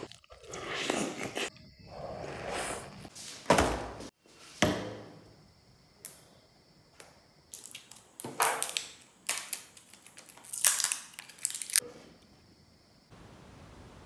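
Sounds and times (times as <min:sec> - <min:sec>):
food packaging crinkling: 0:07.6 - 0:11.8.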